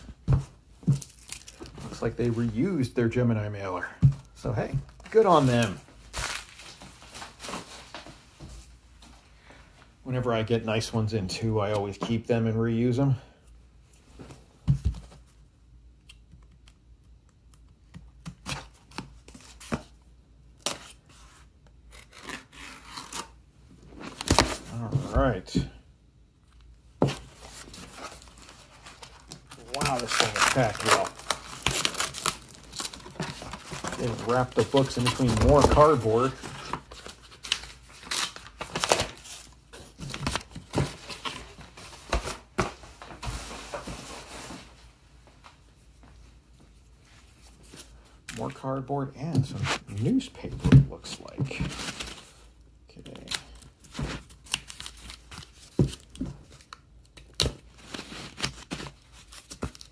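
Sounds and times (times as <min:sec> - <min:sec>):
cardboard scraping and rustling: 0:27.0 - 0:44.8.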